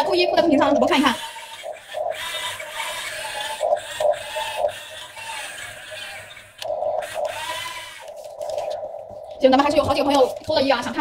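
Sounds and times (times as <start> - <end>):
electric gear motors whirring: 0.6 - 8.8.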